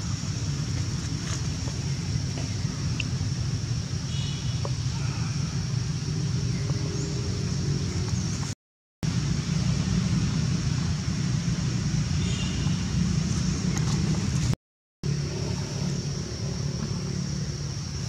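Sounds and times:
steady high hiss: 0.0s - 13.4s.

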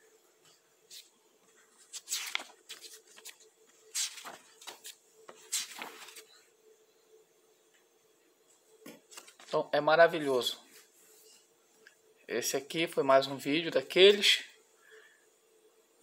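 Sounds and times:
book pages turning: 0.9s - 6.4s, 9.1s - 9.6s.

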